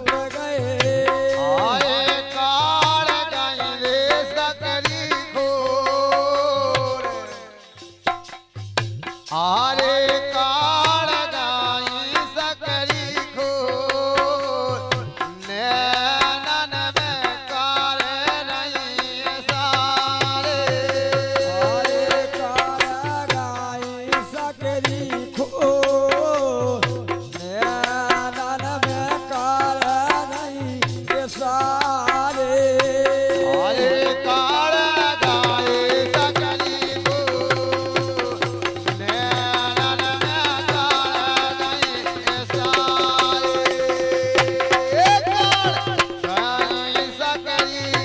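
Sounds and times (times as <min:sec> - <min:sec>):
hand drum beating: 0:00.0 - 0:03.3, 0:19.4 - 0:48.0
man singing: 0:00.0 - 0:08.0, 0:09.3 - 0:48.0
held accompanying notes: 0:01.0 - 0:02.4, 0:20.4 - 0:23.2, 0:32.9 - 0:39.6
metallic percussion strokes: 0:05.6 - 0:10.6.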